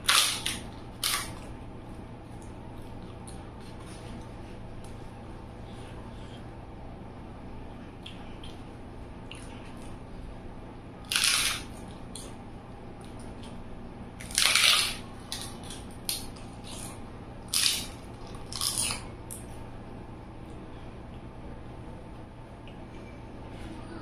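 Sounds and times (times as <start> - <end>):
loud crunching bites: 0.0 - 1.5, 11.0 - 12.4, 14.2 - 19.5
soft wet chewing: 0.1 - 6.5, 7.9 - 10.0, 13.0 - 19.7.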